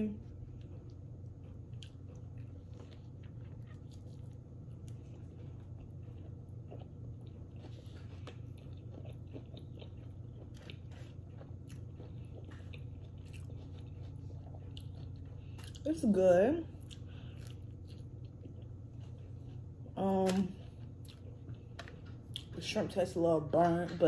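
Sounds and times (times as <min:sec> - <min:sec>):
steady low hum: 0:00.0 - 0:24.0
person chewing food: 0:00.2 - 0:16.1, 0:16.7 - 0:22.6.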